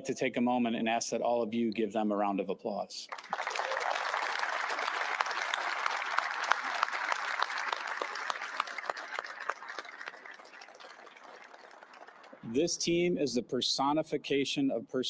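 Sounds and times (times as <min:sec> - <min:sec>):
large audience applauding: 0:03.1 - 0:12.4.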